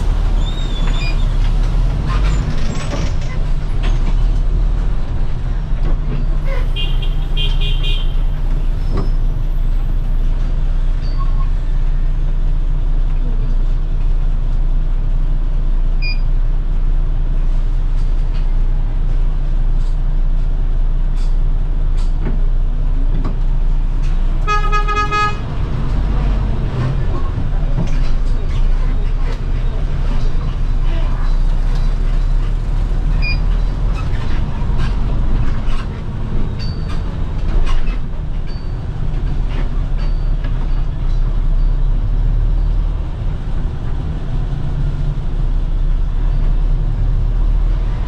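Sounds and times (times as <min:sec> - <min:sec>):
bus engine rumbling: 0:00.0 - 0:48.0
bus horn: 0:06.5 - 0:08.3, 0:24.4 - 0:25.5.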